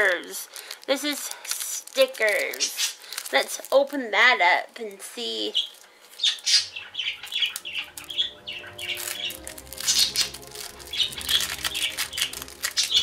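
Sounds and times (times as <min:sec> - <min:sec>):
wrapper crinkling and tearing: 0:00.0 - 0:04.3, 0:05.2 - 0:06.3, 0:06.9 - 0:13.0.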